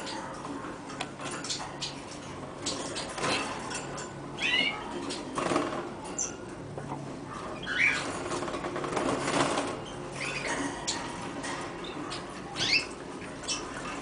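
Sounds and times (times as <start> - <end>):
canary chirps: 0.0 - 0.4, 1.3 - 5.4, 6.1 - 6.5, 7.4 - 8.3, 9.6 - 11.2, 11.8 - 14.0
birds fluttering in wire cage: 0.3 - 6.4, 7.4 - 14.0.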